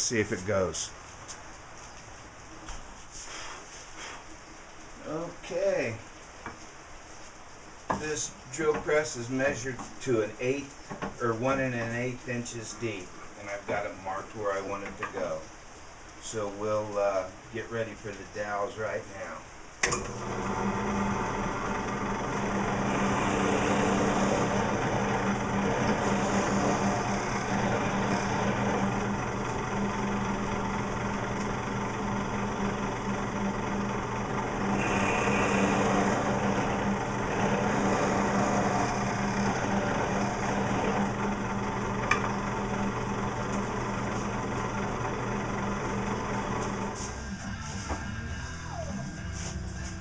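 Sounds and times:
drill press humming: 0:19.8 - 0:50.0
drill bit boring into wood: 0:20.0 - 0:47.0.

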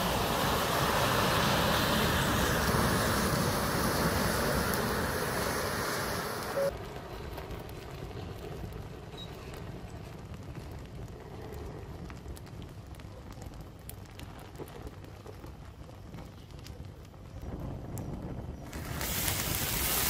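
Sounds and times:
steady low rumble: 0:00.0 - 0:14.2
matchsticks crackling and popping: 0:18.6 - 0:20.0.

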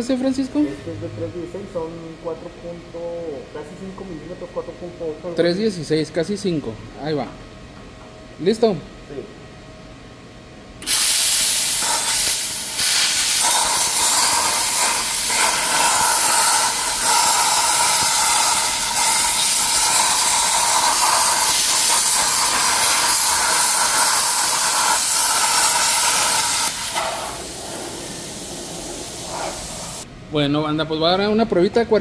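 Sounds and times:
plasma cutter hissing: 0:10.8 - 0:30.0.

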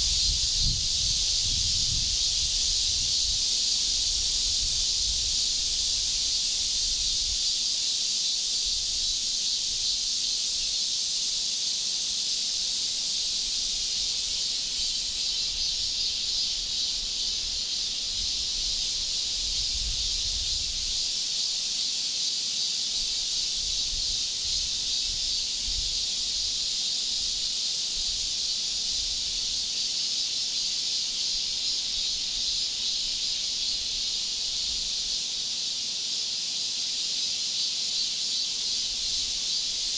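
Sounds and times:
high-pitched insect chorus: 0:00.0 - 0:39.9.

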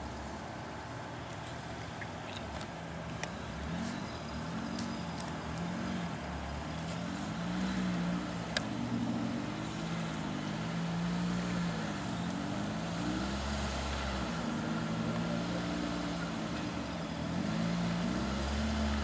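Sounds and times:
off-road vehicle engine: 0:00.0 - 0:19.0.

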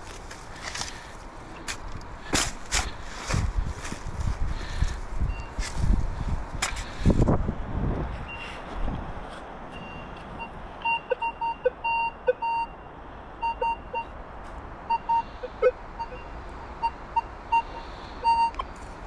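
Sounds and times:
metal detector beeps: 0:05.3 - 0:05.6, 0:09.8 - 0:12.8, 0:13.4 - 0:14.1, 0:14.9 - 0:18.7.

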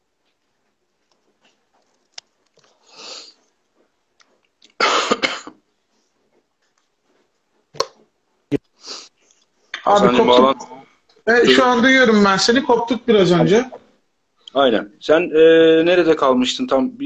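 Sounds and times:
breathy hiss: 0:02.7 - 0:03.5, 0:08.8 - 0:09.4
man coughing: 0:04.8 - 0:05.6.

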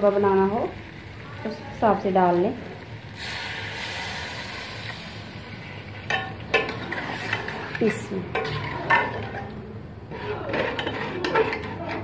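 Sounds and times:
water sizzling in hot oil: 0:00.0 - 0:09.6
metal spoon scraping a pot: 0:05.9 - 0:12.0.

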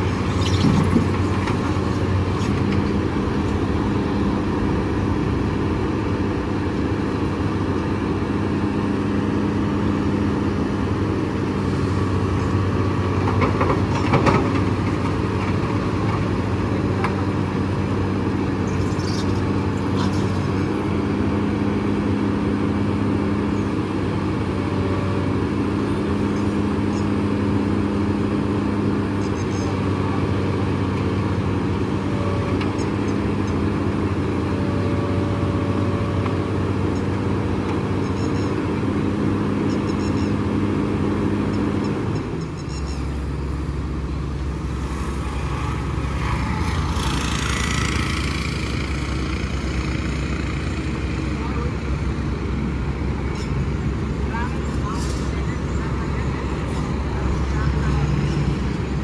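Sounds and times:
excavator diesel engine revving: 0:00.0 - 0:59.0.

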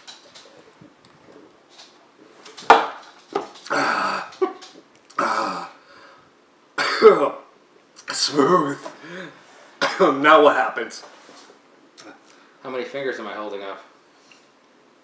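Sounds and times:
man coughing: 0:03.7 - 0:04.4, 0:06.8 - 0:07.4, 0:09.8 - 0:10.2.

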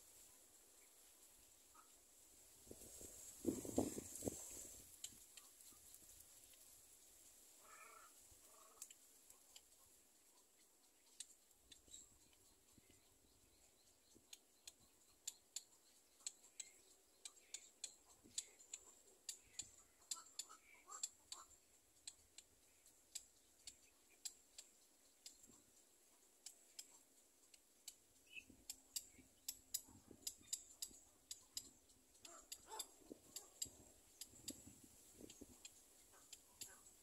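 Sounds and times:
faint sharp ticks: 0:08.5 - 0:13.0, 0:14.2 - 0:37.0.

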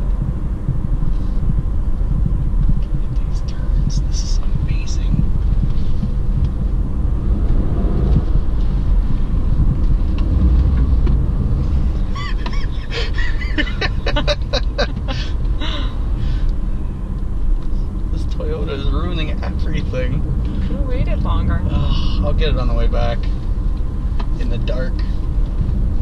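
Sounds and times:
car engine and tyre rumble: 0:00.0 - 0:26.0.

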